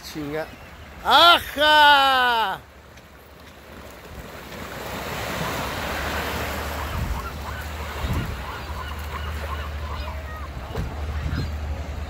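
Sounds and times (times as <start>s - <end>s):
waves washing up a beach: 0.0s - 12.0s
seagulls crying: 0.2s - 2.6s, 5.2s - 12.0s
wind buffeting microphone: 6.7s - 8.9s, 10.2s - 12.0s.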